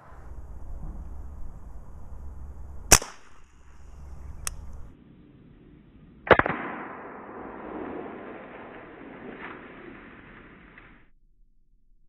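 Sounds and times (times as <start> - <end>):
air rifle shot crack: 2.9 - 5.4, 6.2 - 11.0.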